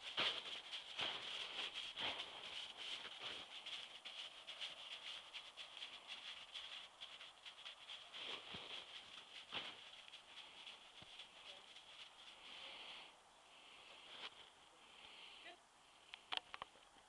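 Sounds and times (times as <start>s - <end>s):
hooves on snow: 0.0s - 13.0s.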